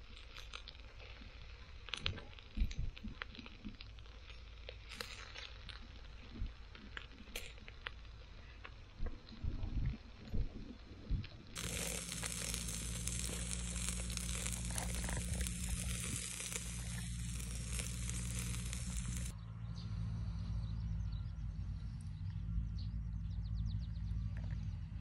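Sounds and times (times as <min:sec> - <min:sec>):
meat sizzling on grill: 0:11.6 - 0:19.3
steady low hum: 0:11.6 - 0:23.2.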